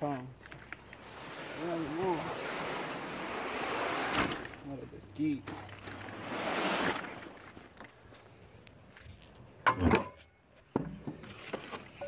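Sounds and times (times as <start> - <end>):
palm fronds scraping over concrete: 0.1 - 8.0.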